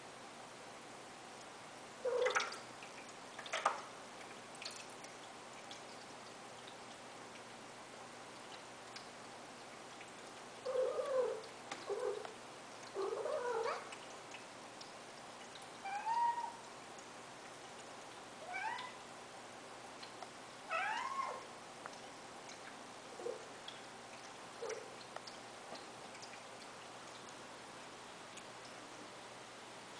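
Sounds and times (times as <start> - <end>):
cat meowing: 18.4 - 19.0, 20.7 - 21.4.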